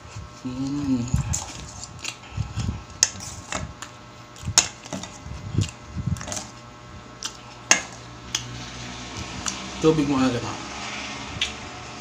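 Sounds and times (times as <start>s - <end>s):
person chewing and lip smacking: 11.4s - 11.6s.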